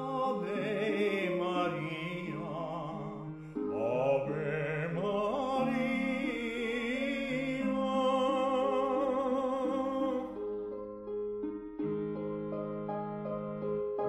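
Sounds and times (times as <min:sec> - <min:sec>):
solo voice singing with vibrato: 0:00.0 - 0:10.4.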